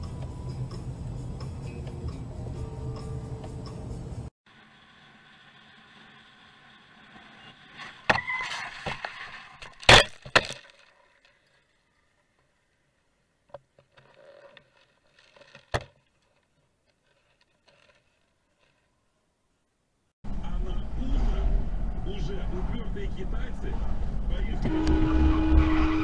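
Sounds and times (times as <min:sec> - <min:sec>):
vehicle running: 0:00.0 - 0:08.1, 0:20.2 - 0:26.0
crash impacts and scraping: 0:07.0 - 0:12.6.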